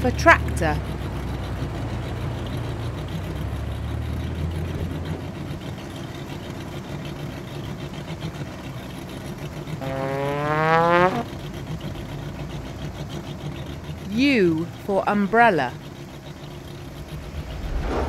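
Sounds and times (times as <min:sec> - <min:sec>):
cartoon tractor engine running: 0:00.0 - 0:17.8
rising pitched sound effect: 0:16.8 - 0:18.0.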